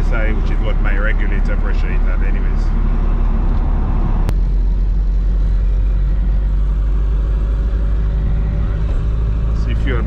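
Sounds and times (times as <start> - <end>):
car engine and road drone: 0.0 - 10.0.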